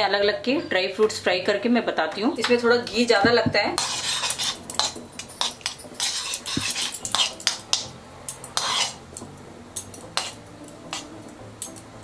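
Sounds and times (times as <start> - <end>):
spoon scraping metal pan: 2.9 - 9.1, 10.1 - 11.1.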